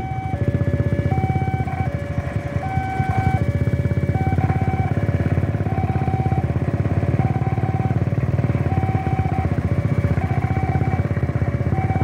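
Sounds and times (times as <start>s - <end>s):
motorcycle engine idling: 0.0s - 12.0s
two-tone crossing alarm: 0.0s - 12.0s.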